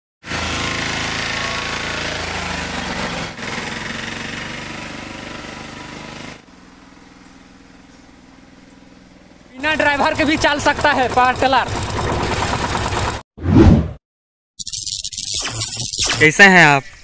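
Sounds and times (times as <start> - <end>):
diesel tiller engine chattering: 7.2 - 13.2.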